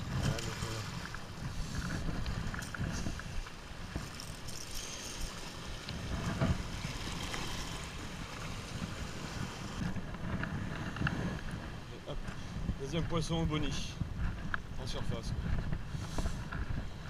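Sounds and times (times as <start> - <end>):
waves washing over rocks: 0.0 - 12.2
wind buffeting microphone: 0.0 - 17.0.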